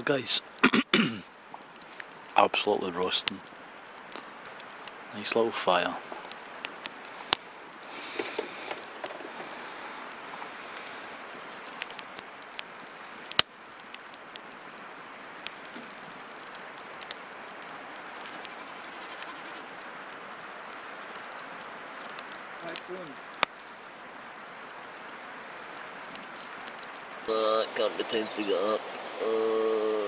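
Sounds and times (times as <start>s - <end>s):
campfire crackling and popping: 0.0s - 30.0s.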